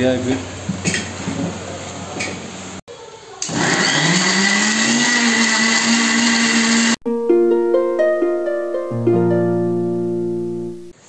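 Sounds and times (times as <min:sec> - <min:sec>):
mixer grinder motor running: 0:03.4 - 0:07.0
plucked string music: 0:07.0 - 0:10.9.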